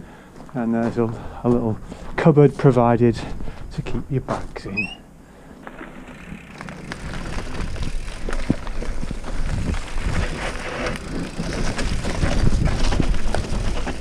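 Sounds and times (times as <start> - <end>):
bike tyres rolling over dirt: 5.3 - 14.0
bike rattling over bumps: 5.4 - 14.0.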